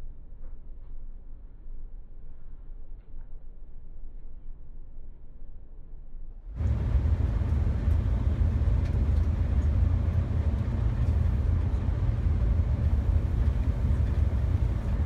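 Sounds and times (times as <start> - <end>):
vehicle road and engine rumble: 6.5 - 15.0.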